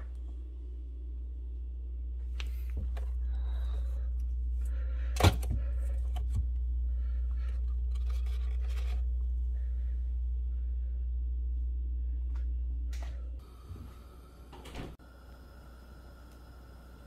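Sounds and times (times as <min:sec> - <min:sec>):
steady low hum: 0:00.0 - 0:17.0
food containers rustling and scraping: 0:07.4 - 0:09.3.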